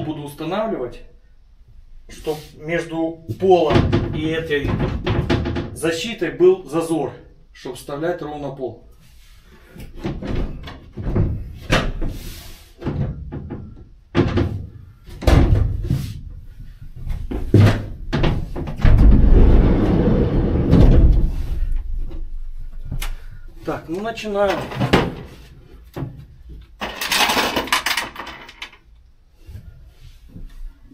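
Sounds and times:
steps on metal floor: 12.8 - 24.0
scraping: 15.8 - 25.8.

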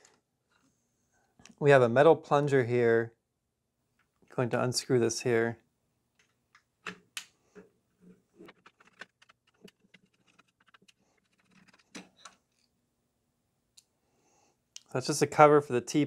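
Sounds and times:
plastic parts clicking and tapping: 8.4 - 12.7.

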